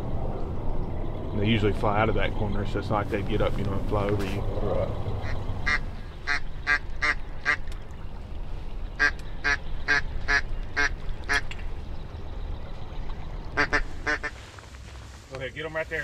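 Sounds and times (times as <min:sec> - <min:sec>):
ducks quacking: 0:05.2 - 0:07.7, 0:09.0 - 0:11.6, 0:13.5 - 0:14.5.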